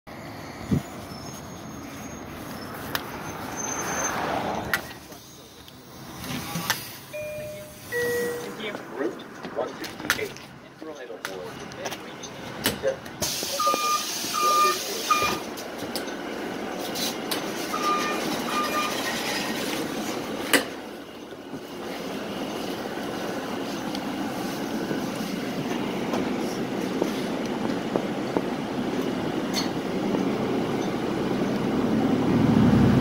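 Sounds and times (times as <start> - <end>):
bus engine and road noise: 0.1 - 33.0
short electronic beeps: 7.1 - 8.6, 13.6 - 15.5, 17.7 - 19.0.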